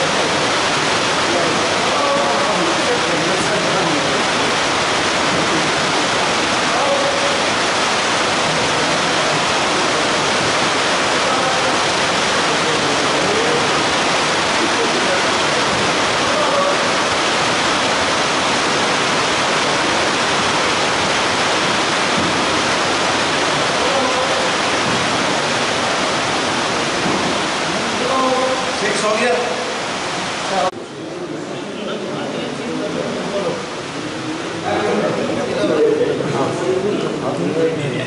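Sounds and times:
faint voices: 0.0s - 20.2s, 22.1s - 29.8s
loud rushing hiss: 0.0s - 30.8s.

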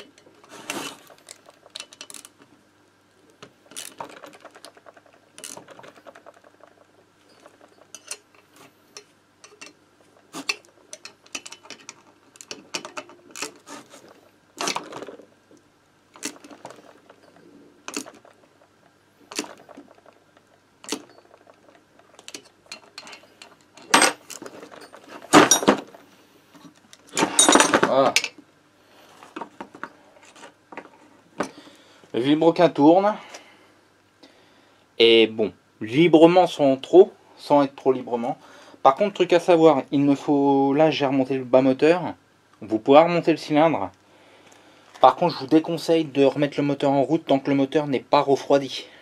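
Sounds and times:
metal clatter: 3.7s - 15.3s, 16.2s - 26.0s, 27.1s - 28.4s
hand tools clinking on metal: 5.4s - 13.6s, 20.8s - 25.9s, 27.1s - 28.4s.

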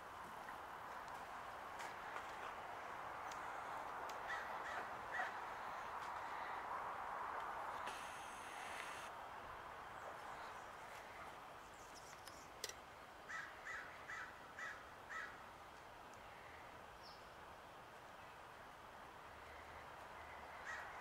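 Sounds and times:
crow cawing: 4.3s - 6.7s, 13.3s - 15.4s, 20.6s - 21.0s.

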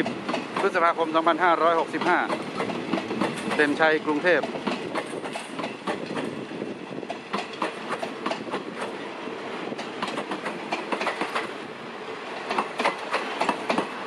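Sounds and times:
train rumble: 0.0s - 14.0s
train wheels clickety-clack: 0.0s - 14.0s.

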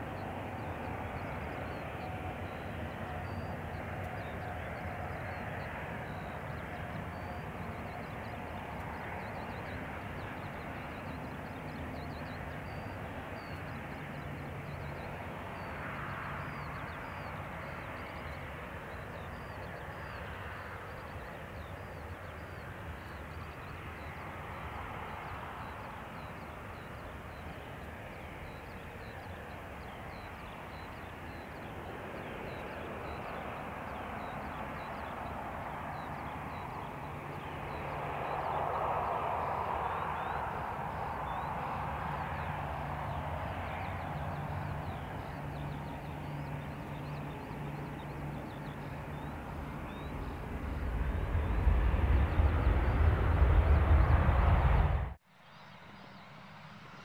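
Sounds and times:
jet engines taxiing: 0.0s - 57.0s.

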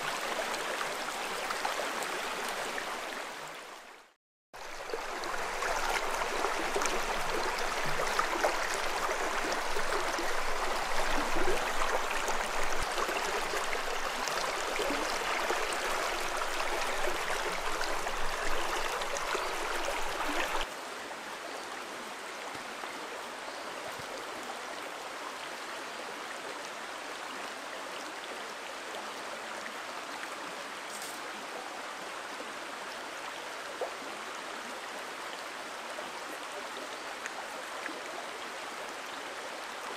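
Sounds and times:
stream water rushing over rocks: 0.0s - 25.6s.

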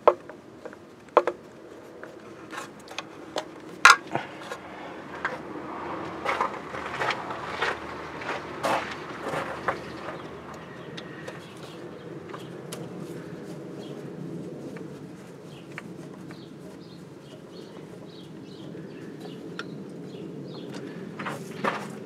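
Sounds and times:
hand tools clicking and tapping: 0.0s - 13.0s
birds chirping: 0.0s - 22.0s
low background noise: 0.0s - 22.0s.

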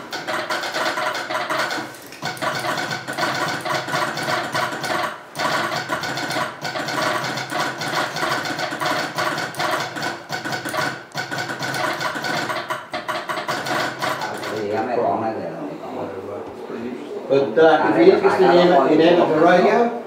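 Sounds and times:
telegraph clattering metallic clicks: 0.0s - 14.8s.

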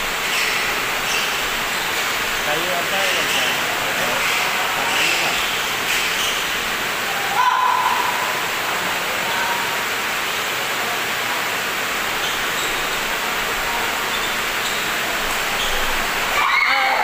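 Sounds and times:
indoor hall rushing noise: 0.0s - 17.0s
shoe squeak: 4.2s - 6.5s, 12.2s - 13.1s, 14.1s - 16.0s.

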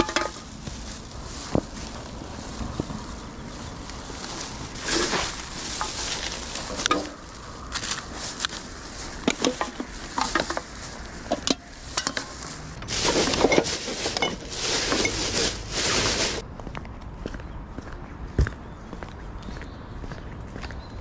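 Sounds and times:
plastic bag rustling: 0.0s - 16.4s.

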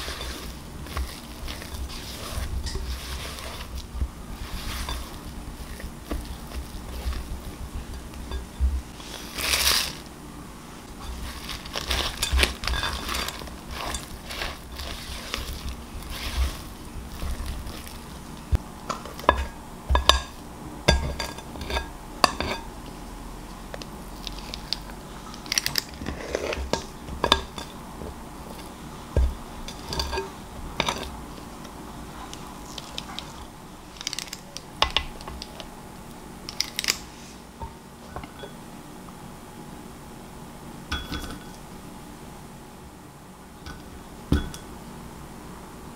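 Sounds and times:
spatula scraping dough in glass bowl: 0.0s - 10.1s, 11.0s - 22.7s, 25.5s - 27.8s.

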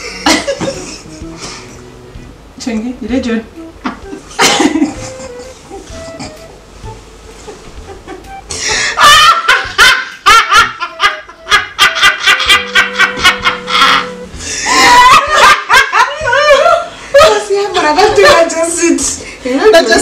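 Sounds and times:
women laughing: 0.0s - 1.4s, 4.1s - 6.4s, 7.9s - 18.7s.

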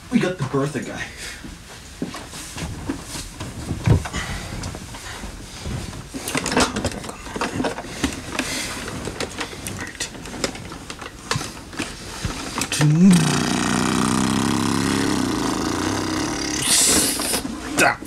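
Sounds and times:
plastic toy clunks and rattles: 6.3s - 7.8s.

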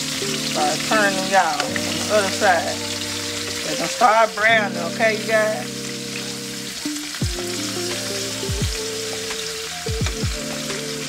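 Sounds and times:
background music: 0.0s - 11.0s
meat sizzling in a skillet: 0.0s - 11.0s.

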